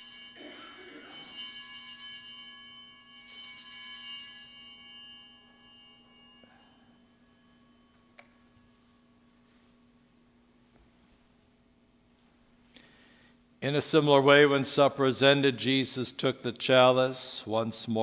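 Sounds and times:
altar bells ringing: 0.0s - 10.1s.

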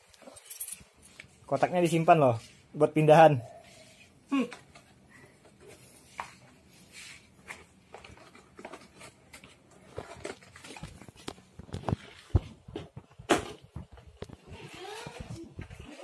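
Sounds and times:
cardboard and foam packing rustling: 3.9s - 16.0s.

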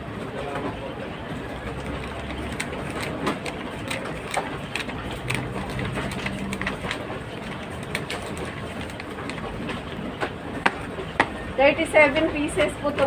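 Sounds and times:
paper pages riffled by hand: 1.7s - 9.9s.

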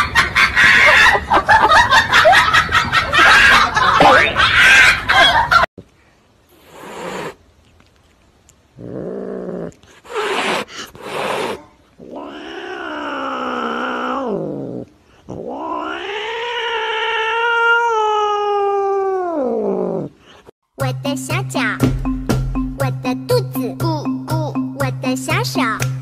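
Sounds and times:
cat yowling: 10.2s - 20.1s.

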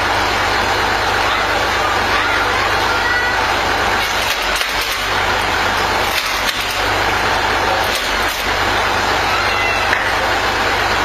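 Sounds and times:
engine running steadily: 0.0s - 11.0s
wood cracking and splintering: 4.0s - 7.1s, 7.7s - 8.6s.

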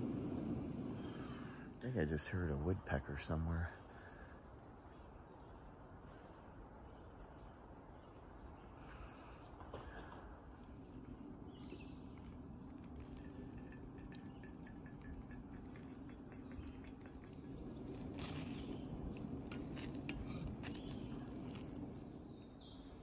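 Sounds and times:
steady low hum: 0.0s - 8.7s, 10.3s - 23.0s
eggs stirred in a pan: 10.8s - 22.1s
utensils clinking on metal mug: 11.6s - 18.8s.

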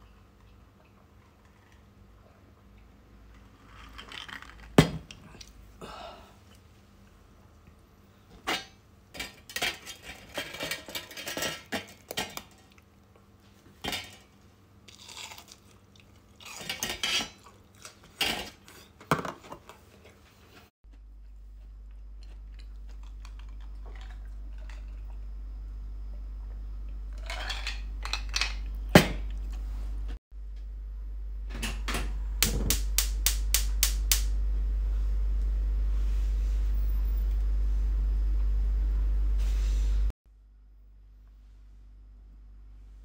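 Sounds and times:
kitchenware clinking: 8.4s - 12.7s
low steady hum: 20.8s - 43.0s.

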